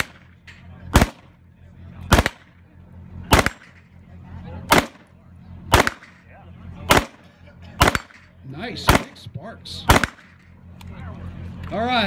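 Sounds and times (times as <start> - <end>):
rifle shots with echo: 0.0 - 1.4, 2.1 - 2.6, 3.3 - 3.9, 4.7 - 5.1, 5.7 - 10.5.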